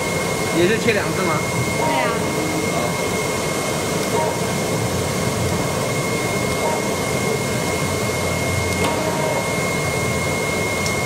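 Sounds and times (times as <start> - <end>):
cutting machine whir and whine: 0.0 - 11.0.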